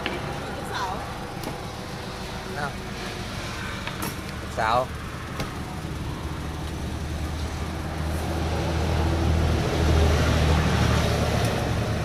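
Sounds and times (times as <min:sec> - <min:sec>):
traffic noise: 0:00.0 - 0:12.0
vehicle engine rumbling: 0:00.0 - 0:12.0.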